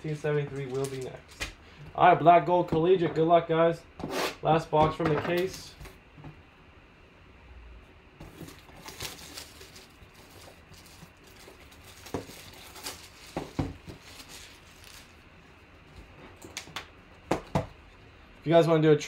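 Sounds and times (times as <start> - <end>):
plastic wrap crinkling and tearing: 8.2 - 16.7.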